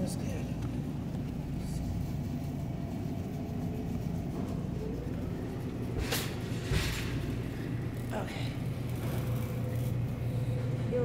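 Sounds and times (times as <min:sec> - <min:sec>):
supermarket background rumble: 0:00.0 - 0:11.0.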